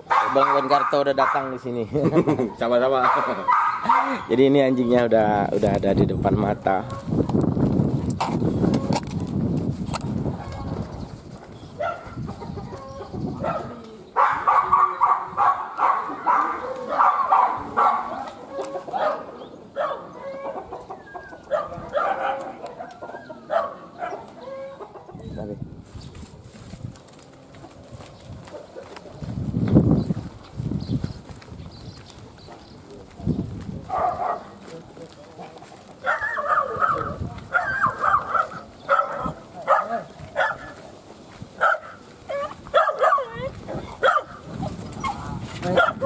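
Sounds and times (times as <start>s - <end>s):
dog barking: 0.1s - 1.6s, 3.0s - 4.3s, 11.8s - 12.2s, 13.4s - 20.6s, 21.5s - 24.3s, 33.9s - 34.6s, 36.0s - 40.8s, 41.6s - 44.4s, 45.0s - 46.0s.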